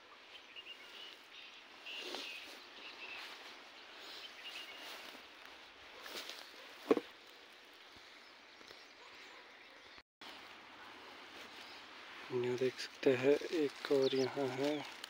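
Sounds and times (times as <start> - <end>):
bird chirps: 0.0 - 5.6
footsteps in dry grass and leaves: 0.0 - 9.1, 10.2 - 15.0.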